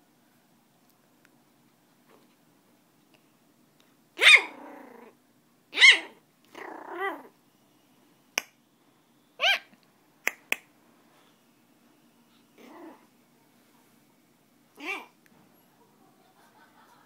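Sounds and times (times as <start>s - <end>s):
puppy growling: 4.2s - 5.2s, 5.8s - 7.4s, 12.6s - 13.1s
puppy yapping: 4.2s - 7.3s, 9.4s - 9.8s, 14.8s - 15.2s.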